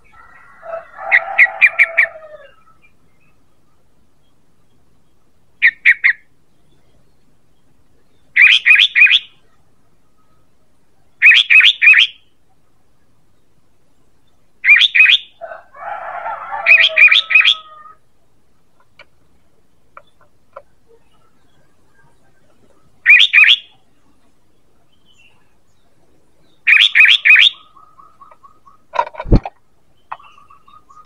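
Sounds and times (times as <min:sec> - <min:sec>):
bulbul calling: 0:05.6 - 0:07.0, 0:08.0 - 0:12.6, 0:14.6 - 0:15.4, 0:16.6 - 0:18.0, 0:19.9 - 0:31.0
scratchy bird chatter: 0:14.6 - 0:31.0.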